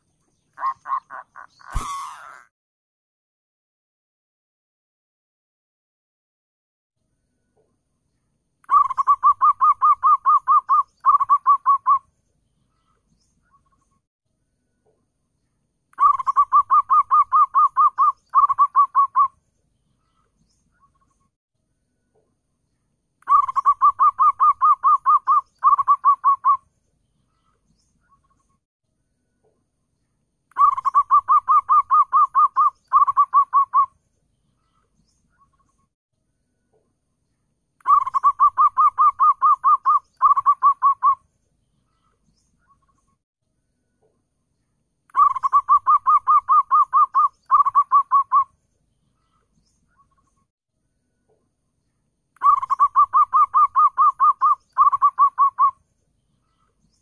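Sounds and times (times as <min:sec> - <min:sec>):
dove cooing: 0:08.7 - 0:12.0, 0:16.0 - 0:19.3, 0:23.3 - 0:26.6, 0:30.6 - 0:33.9, 0:37.9 - 0:41.2, 0:45.2 - 0:48.4, 0:52.4 - 0:55.7.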